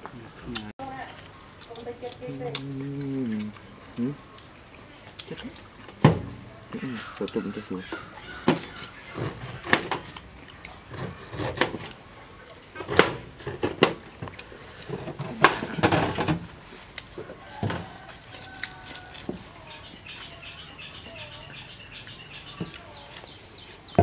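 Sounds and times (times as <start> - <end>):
pineapple crunching: 0.0 - 24.0
bird calls: 6.4 - 11.4, 17.4 - 24.0.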